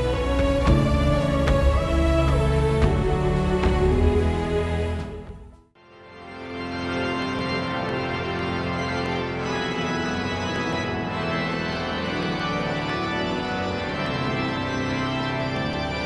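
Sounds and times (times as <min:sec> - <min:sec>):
pipe organ playing chords: 0:06.0 - 0:16.0.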